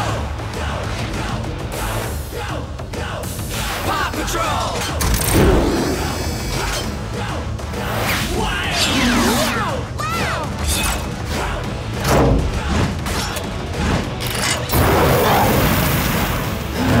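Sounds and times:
mechanical clanks: 0:04.8 - 0:05.6, 0:12.0 - 0:14.9.

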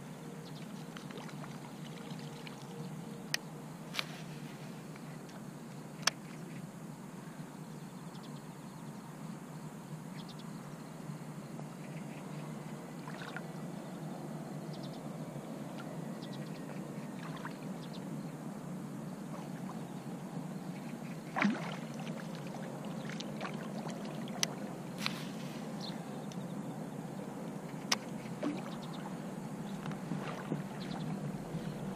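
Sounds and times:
water lapping against boat: 0:00.6 - 0:02.9, 0:12.9 - 0:13.6, 0:15.8 - 0:18.0, 0:19.2 - 0:25.9, 0:27.6 - 0:31.9.

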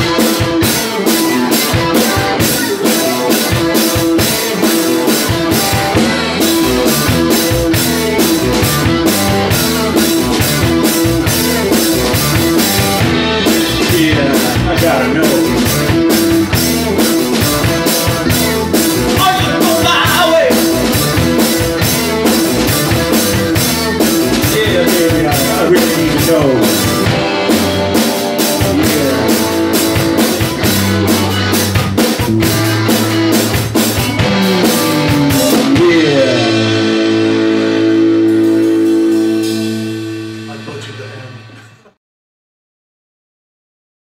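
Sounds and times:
drum kit pounding: 0:00.0 - 0:42.0
electric guitar: 0:00.0 - 0:42.0
live rock band playing: 0:00.0 - 0:42.0.

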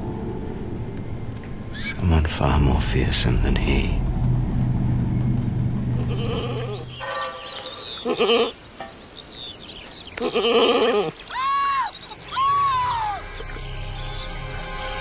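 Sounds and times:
low steady hum: 0:00.0 - 0:07.1.

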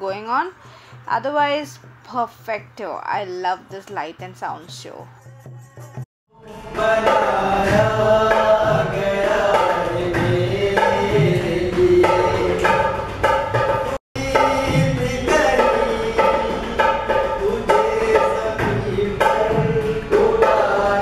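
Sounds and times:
hand-drum beat: 0:06.7 - 0:21.0
person singing: 0:14.2 - 0:21.0.

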